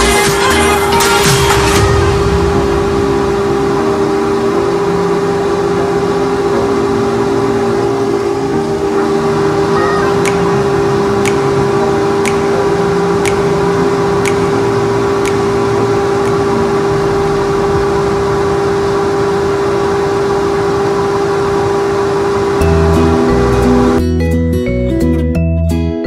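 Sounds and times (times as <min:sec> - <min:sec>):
pet dryer blower hum: 0:00.1 - 0:24.0.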